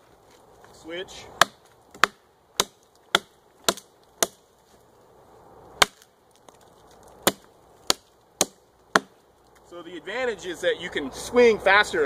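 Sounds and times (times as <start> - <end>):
axe chopping into log: 1.4 - 4.4, 5.8 - 6.1, 7.2 - 9.2.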